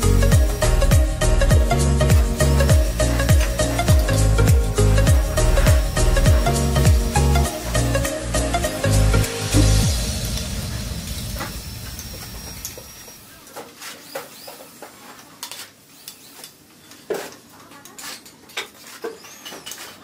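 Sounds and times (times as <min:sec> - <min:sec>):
background music: 0:00.0 - 0:12.8.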